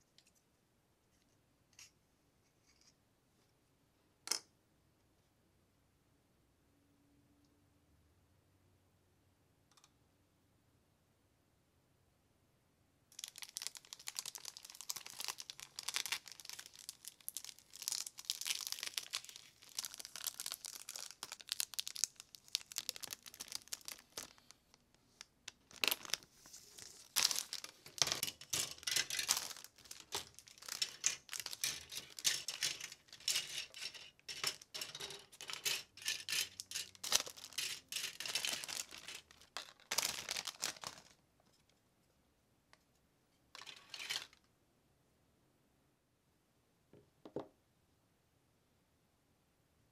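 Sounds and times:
plastic bags crinkling: 13.2 - 41.2.

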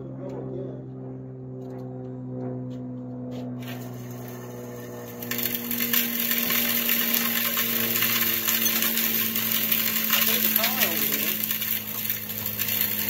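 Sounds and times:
electric spreader motor: 3.1 - 13.0
sand and stones rattling on pavement: 3.5 - 13.0.

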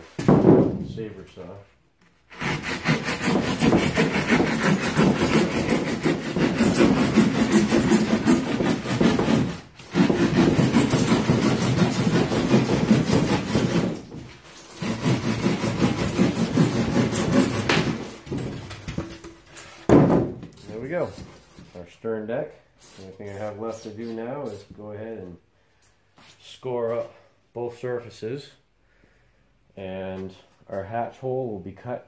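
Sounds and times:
hand saw rasping through foam: 2.3 - 19.7.

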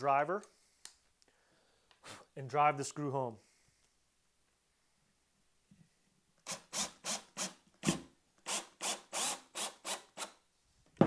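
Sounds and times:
cordless drill driving screw: 6.4 - 10.4.

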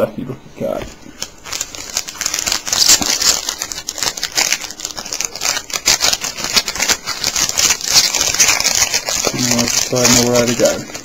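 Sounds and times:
foil wrapper crinkling: 1.0 - 11.0.

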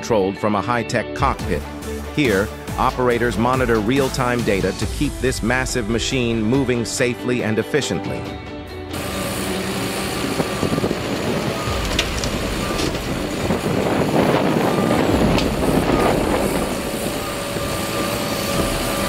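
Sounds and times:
heavy machinery rumble: 8.9 - 19.0
machinery clanks: 8.9 - 19.0.

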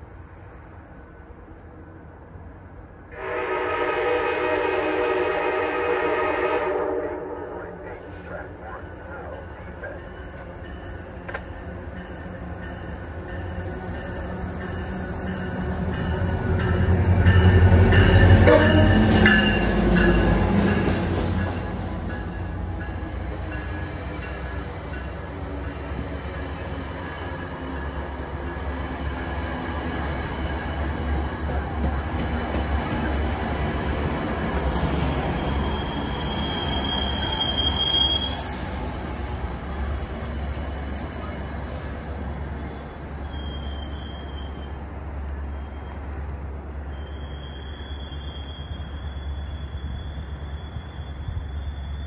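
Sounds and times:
train rolling rumble: 0.0 - 52.0
high brake squeal: 34.6 - 39.4, 41.6 - 44.8, 46.8 - 52.0.

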